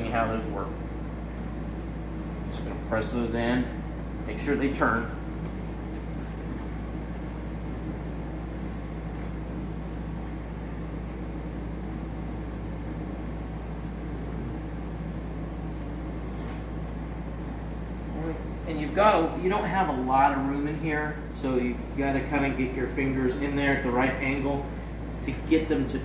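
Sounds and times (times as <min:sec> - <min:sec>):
low machine hum: 0:00.0 - 0:26.0
fabric rustling: 0:05.4 - 0:07.0.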